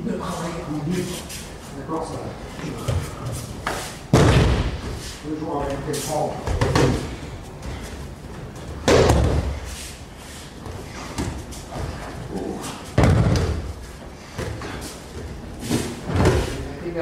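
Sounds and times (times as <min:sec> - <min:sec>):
body slamming onto mat: 0:04.1 - 0:04.9, 0:13.0 - 0:13.7.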